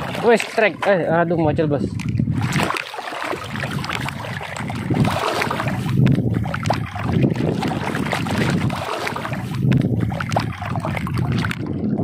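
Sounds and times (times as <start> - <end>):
water sloshing and lapping: 0.0 - 12.0
wind buffeting microphone: 0.0 - 12.0.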